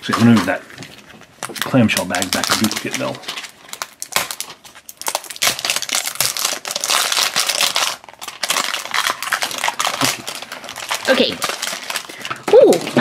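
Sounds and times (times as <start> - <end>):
plastic wrapper crinkling: 0.0 - 13.0.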